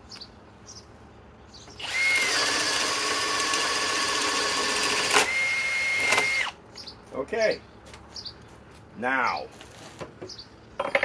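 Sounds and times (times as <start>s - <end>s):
cordless drill boring through wood: 1.8s - 6.6s.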